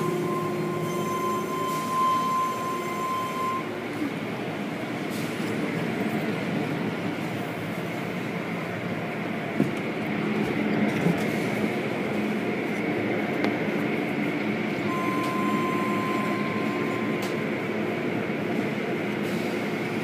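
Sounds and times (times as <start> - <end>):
thin steady whine: 0.0 - 4.2
car wash machinery hum: 0.0 - 20.0.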